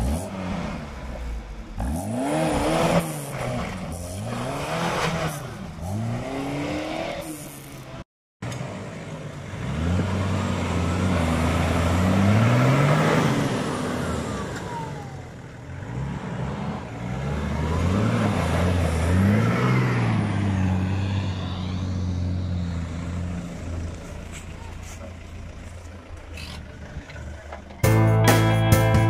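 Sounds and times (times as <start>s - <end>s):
pickup engine revving: 0.0s - 7.6s.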